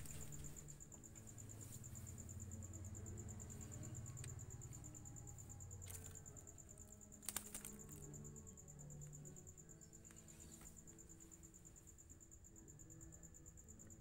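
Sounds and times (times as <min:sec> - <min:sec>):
cricket trilling: 0:00.0 - 0:14.0
sharp clicks: 0:07.2 - 0:08.0.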